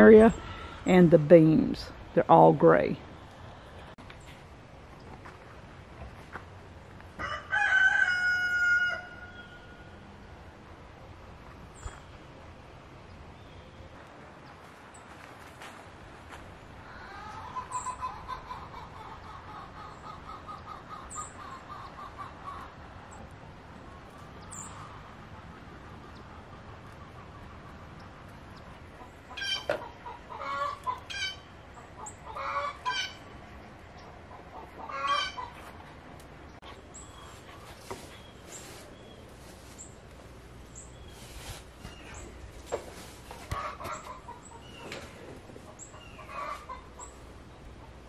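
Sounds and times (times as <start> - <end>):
chickens clucking: 16.8 - 22.9, 24.6 - 39.9, 41.2 - 48.0.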